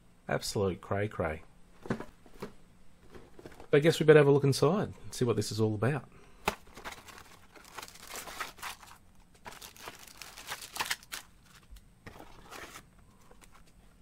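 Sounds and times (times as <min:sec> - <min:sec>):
plastic bags crinkling: 0:06.5 - 0:11.7.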